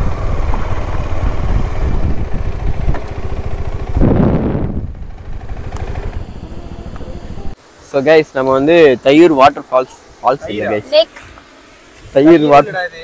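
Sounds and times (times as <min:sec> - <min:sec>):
motorcycle engine running: 0:00.0 - 0:07.6.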